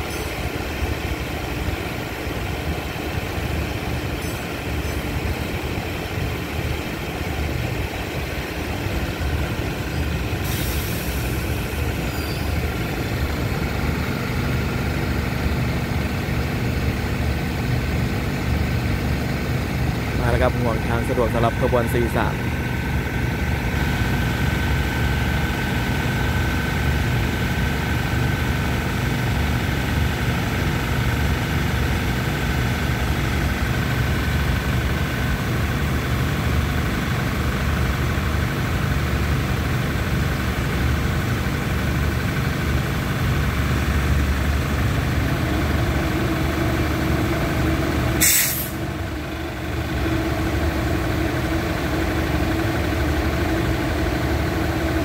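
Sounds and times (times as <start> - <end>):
diesel train engine idling: 0.0 - 55.0
brake air hiss: 10.4 - 12.6, 48.2 - 48.9.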